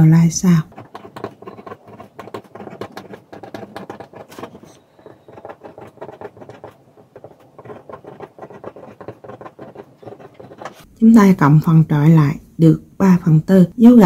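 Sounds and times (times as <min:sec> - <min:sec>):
pen scratching on paper: 0:00.0 - 0:10.9.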